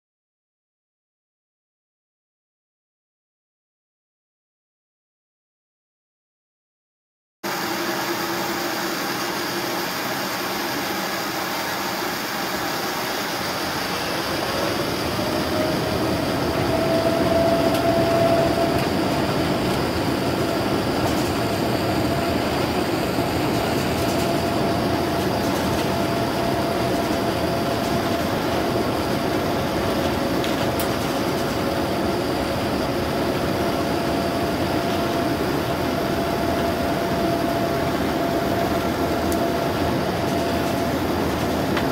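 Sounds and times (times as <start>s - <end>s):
jet engine whine: 7.4s - 41.9s
airliner cabin engine hum: 7.5s - 41.9s.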